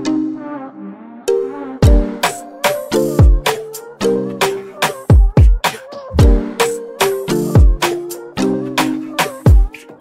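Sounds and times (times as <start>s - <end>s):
deep kick drums: 6.2s - 6.4s.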